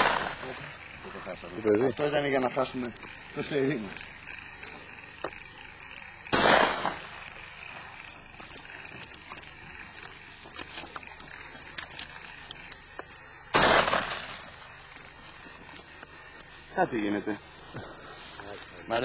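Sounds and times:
shotgun shots: 0.0s - 0.5s, 6.3s - 7.1s, 13.5s - 14.5s.

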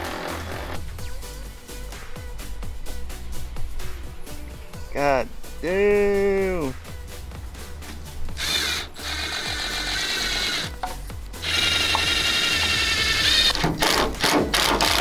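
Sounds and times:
cordless drill whining: 0.0s - 0.8s, 8.4s - 10.8s, 11.4s - 15.0s
background music with bass: 0.0s - 15.0s.

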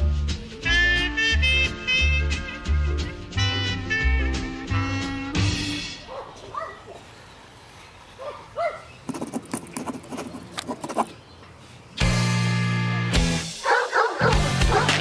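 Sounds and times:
music with held notes: 0.0s - 6.0s.

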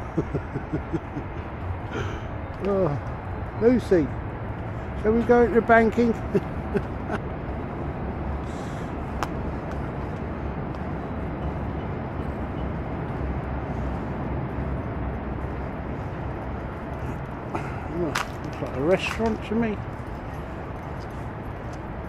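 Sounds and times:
low city rumble: 0.0s - 22.0s.

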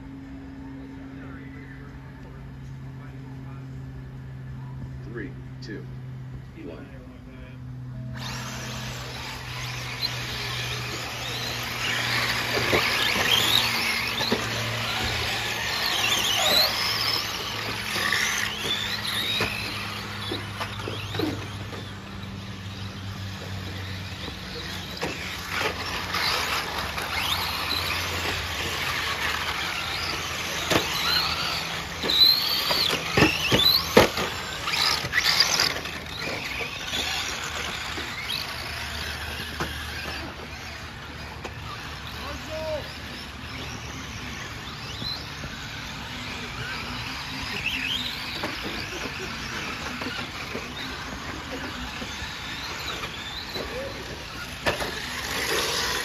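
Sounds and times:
electric motors whining: 0.0s - 56.0s.

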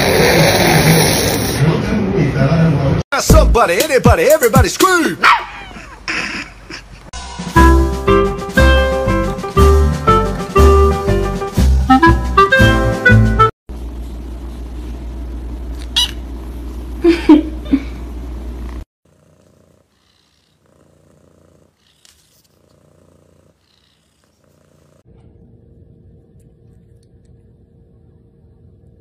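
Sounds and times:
cat purring: 18.5s - 25.4s.

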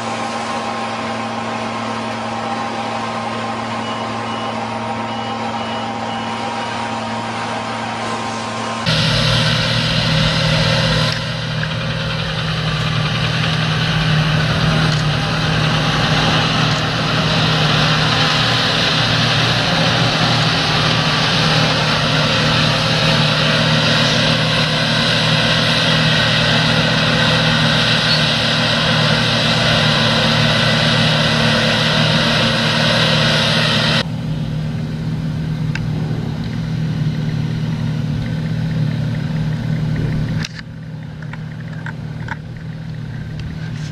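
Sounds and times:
engine drone: 0.0s - 43.9s
loud hiss: 8.0s - 34.0s.

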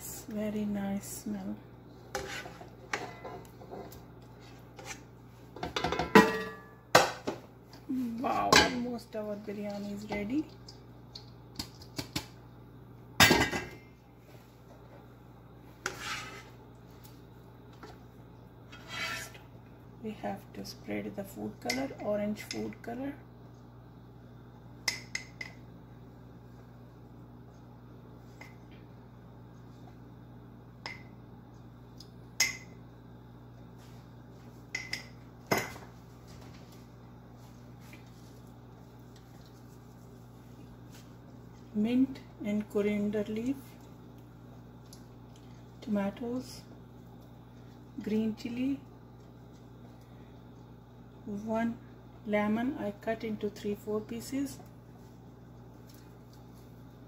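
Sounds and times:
steady low hum: 0.0s - 57.0s
metal cookware clattering: 5.6s - 7.1s
metal scrape: 15.8s - 16.5s, 18.7s - 19.4s.

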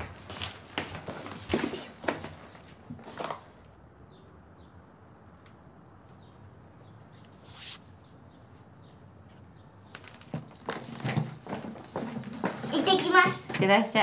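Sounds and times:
shoelaces rustling: 7.2s - 12.8s.

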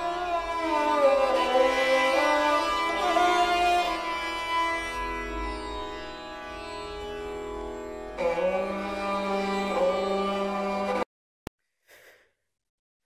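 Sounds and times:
classical string music over drone: 0.0s - 11.0s.

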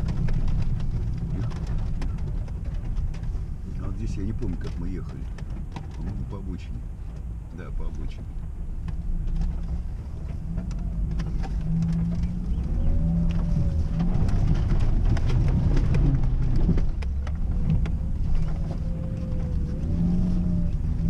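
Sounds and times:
car body rattles and knocks: 0.0s - 20.0s
car engine running: 0.0s - 21.0s.

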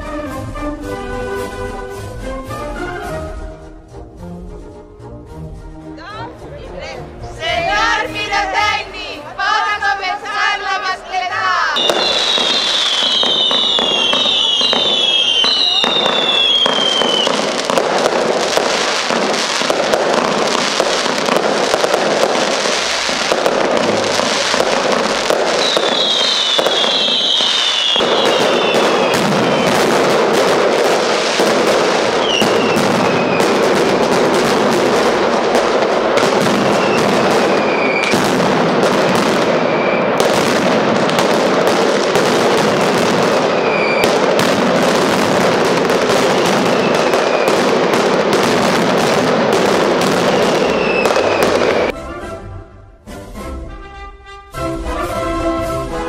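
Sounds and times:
falling firework whistles: 11.8s - 19.7s, 22.5s - 33.8s, 36.2s - 38.4s, 39.2s - 41.2s, 43.4s - 44.2s, 46.0s - 47.7s, 50.0s - 52.0s
firecracker bangs and crackles: 11.8s - 52.0s.

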